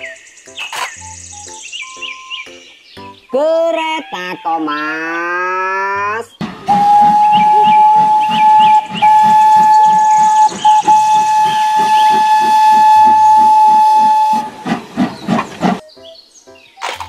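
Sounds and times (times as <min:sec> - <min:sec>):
steam locomotive chuffing: 0:06.4 - 0:15.8
steam whistle blasts: 0:06.5 - 0:14.8.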